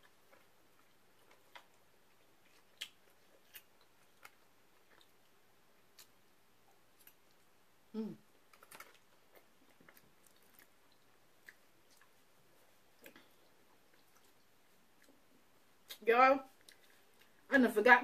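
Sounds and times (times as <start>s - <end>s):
chewing food: 0.0s - 17.5s
person humming mm: 7.9s - 8.2s.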